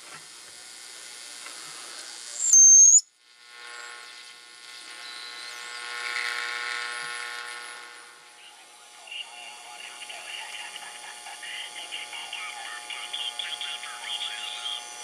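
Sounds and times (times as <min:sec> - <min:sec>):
radio hiss and static: 0:00.0 - 0:15.0
steady buzzy tone: 0:00.0 - 0:15.0
loud high whistle dropping in pitch: 0:02.4 - 0:03.0.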